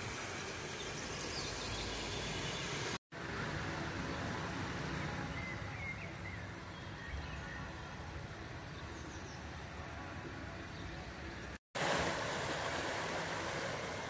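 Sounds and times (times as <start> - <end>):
outdoor background rumble: 0.0 - 14.0.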